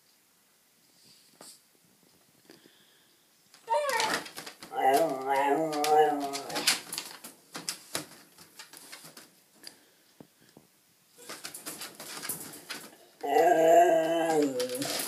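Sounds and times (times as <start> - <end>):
clicks and rustles in a crate: 3.6 - 9.4, 11.2 - 13.1, 14.0 - 15.0
puppy howling: 3.7 - 6.7, 13.2 - 15.0.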